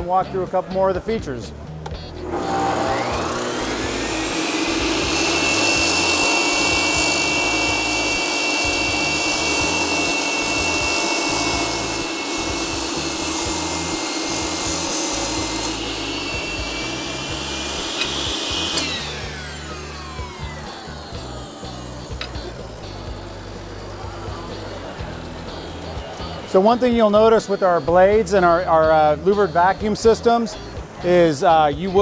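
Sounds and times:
masonry saw cutting block: 2.2s - 22.5s.

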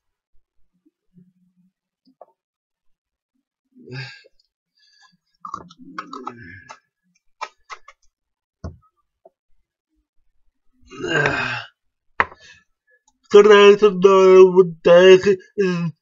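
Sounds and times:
throaty vocal sound: 5.5s - 6.8s, 10.8s - 11.8s.

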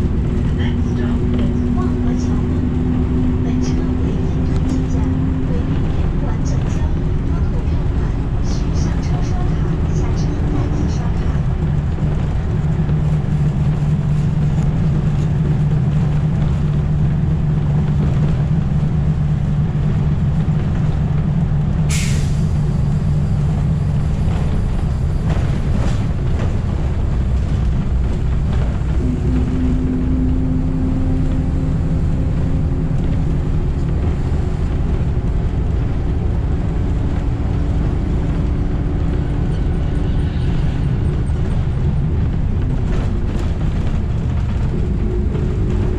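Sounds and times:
bus drivetrain drone and road noise: 0.0s - 45.9s
air brakes hissing: 21.9s - 22.6s.

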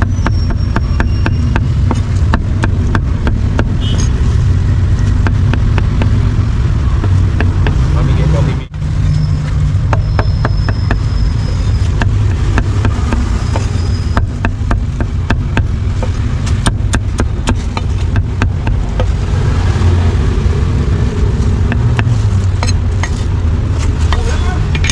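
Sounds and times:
low rumble of traffic: 0.0s - 24.9s
meat cleaver chopping on wooden block: 0.2s - 3.8s, 16.6s - 19.1s.

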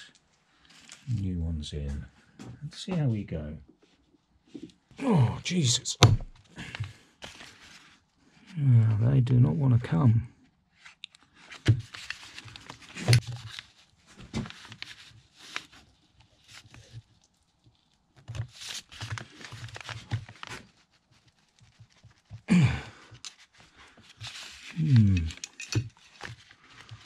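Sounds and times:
screwdriver scraping and clicking on metal: 25.0s - 26.2s.

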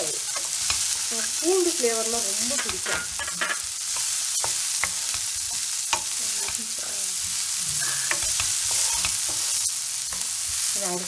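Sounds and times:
vegetables sizzling in oil: 0.0s - 11.0s
wooden spatula scraping a pan: 2.2s - 10.7s.

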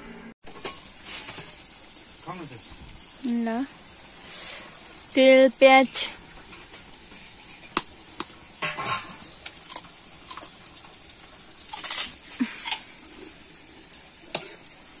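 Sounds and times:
oil popping and crackling: 0.4s - 15.0s
onions sizzling in oil: 0.4s - 15.0s.

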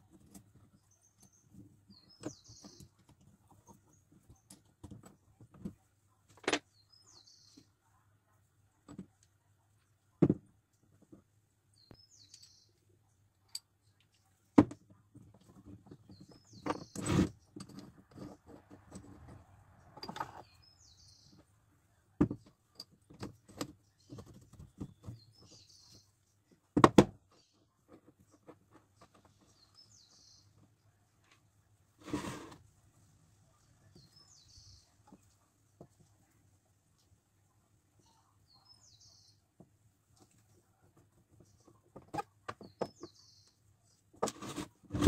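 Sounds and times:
faint bird chirps: 37.6s - 39.5s.

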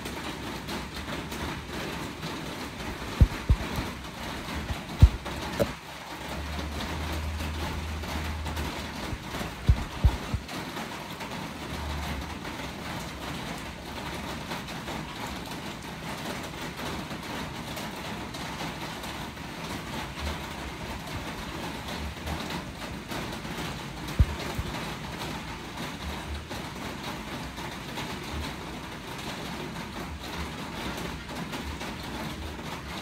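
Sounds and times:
dull thumps: 3.2s - 3.9s, 4.7s - 5.8s, 9.1s - 10.4s.

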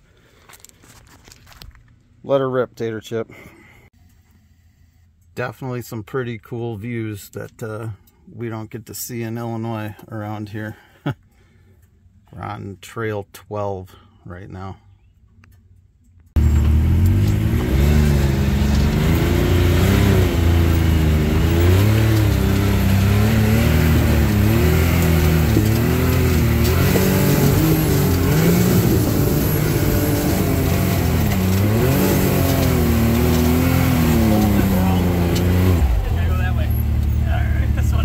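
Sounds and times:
driving noise: 15.8s - 38.0s
vehicle engine revving: 16.4s - 38.0s.

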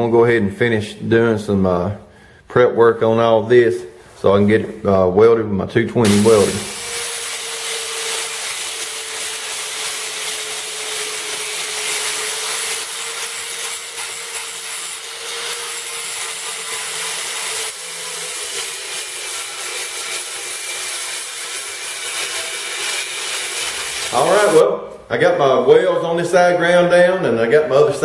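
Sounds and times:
angle grinder grinding metal: 6.0s - 24.6s.

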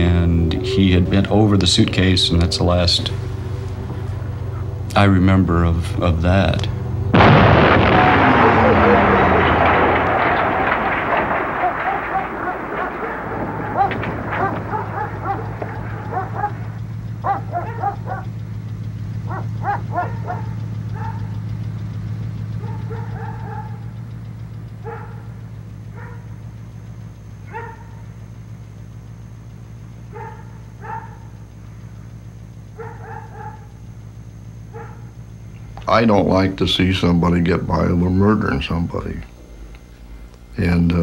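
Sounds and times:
steady low hum: 0.0s - 41.0s
dog barking: 11.6s - 18.4s, 19.2s - 21.4s, 22.6s - 23.9s, 24.8s - 26.4s, 27.5s - 28.0s, 30.1s - 31.3s, 32.8s - 33.8s, 34.6s - 35.1s.

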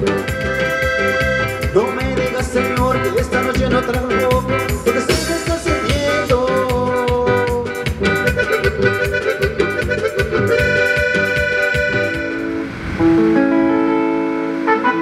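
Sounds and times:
drums steady beat: 0.0s - 12.6s
bass guitar: 0.0s - 15.0s
keyboard: 0.0s - 15.0s
held horn-like chords: 8.2s - 15.0s.

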